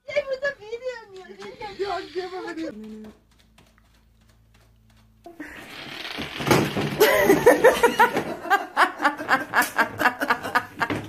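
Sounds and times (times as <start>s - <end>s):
person laughing hard: 7.0s - 11.0s.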